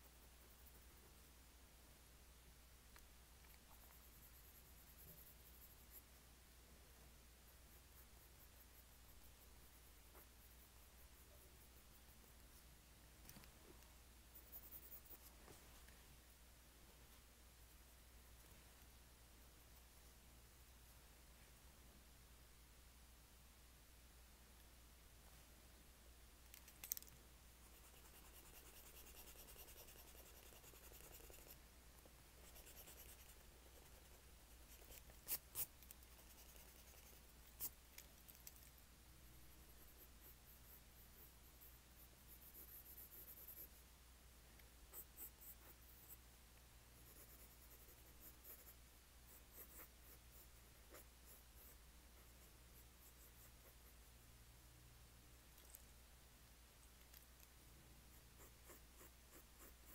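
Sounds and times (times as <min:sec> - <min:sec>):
pen scratching on paper: 0:27.6 - 0:31.6, 0:32.4 - 0:37.8, 0:39.7 - 0:43.8, 0:47.0 - 0:54.0, 0:58.1 - 0:59.9.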